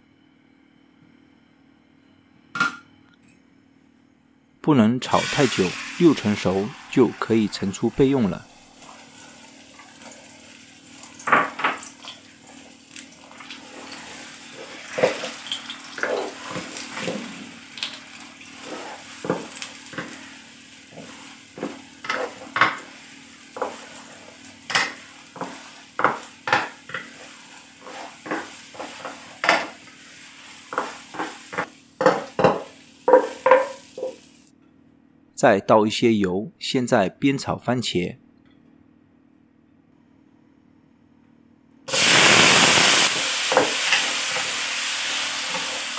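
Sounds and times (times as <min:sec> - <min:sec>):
eggs sizzling in oil: 0:05.0 - 0:34.5, 0:41.9 - 0:45.9
spatula knocking and scraping pan: 0:18.6 - 0:20.3, 0:20.9 - 0:22.9, 0:23.6 - 0:29.8, 0:30.7 - 0:34.2.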